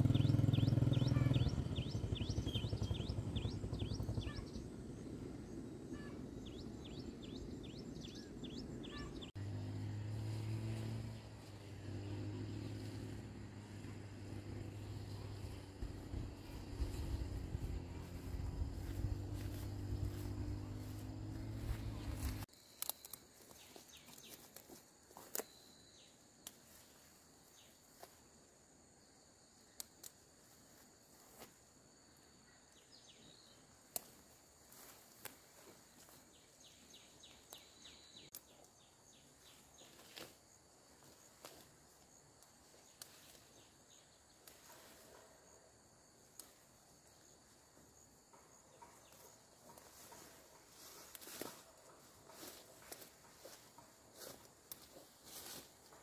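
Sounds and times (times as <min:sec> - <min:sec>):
steady low hum: 0:00.0 - 0:22.5
high insect drone: 0:09.5 - 0:23.5
small chirps: 0:21.6 - 0:25.8
clicks and rustles from plants: 0:21.9 - 0:25.6, 0:48.8 - 0:56.0.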